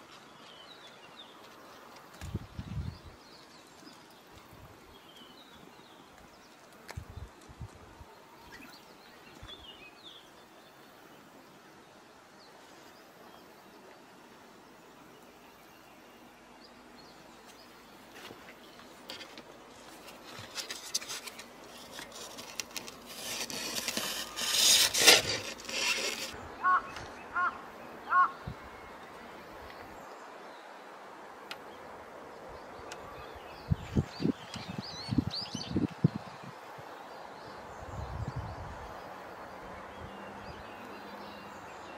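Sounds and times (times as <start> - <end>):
fur rubbing on microphone: 19.9 - 26.4.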